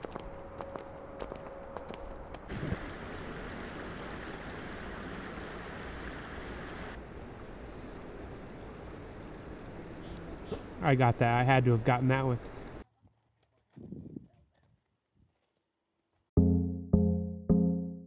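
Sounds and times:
footsteps on paved path: 0:00.0 - 0:02.5.

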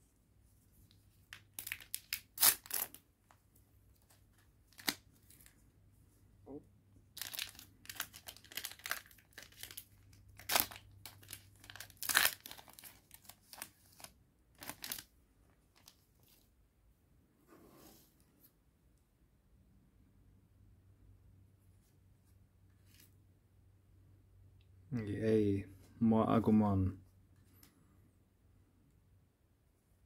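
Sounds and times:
foil wrapper crinkling: 0:01.3 - 0:03.0, 0:07.2 - 0:15.1
foil wrapper tearing: 0:01.5 - 0:03.0, 0:07.2 - 0:15.1.

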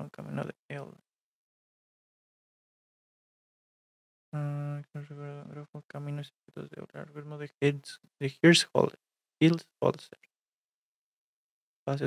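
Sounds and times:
man's voice holding a vowel: 0:04.4 - 0:10.1.

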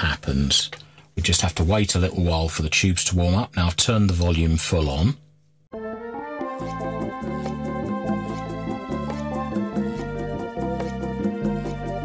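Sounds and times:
sustained keyboard notes: 0:05.7 - 0:12.0
bass line: 0:05.8 - 0:12.0
music with fast ticking beat: 0:06.5 - 0:12.0.

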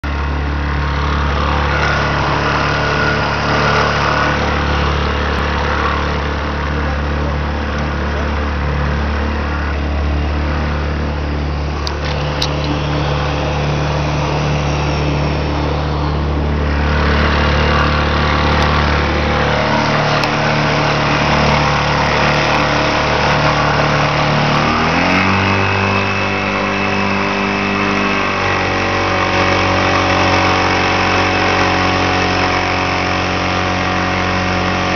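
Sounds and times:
outboard motor running: 0:00.0 - 0:34.9.

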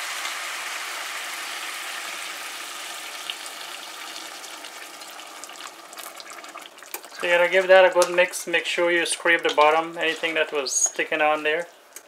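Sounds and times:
water pouring into a pot: 0:00.0 - 0:08.2.

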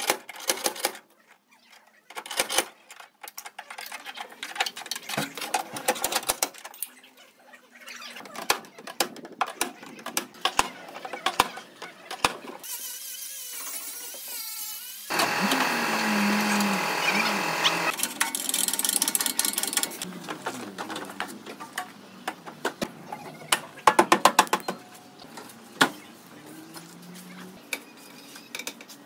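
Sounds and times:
loud power tool running: 0:15.1 - 0:18.0.

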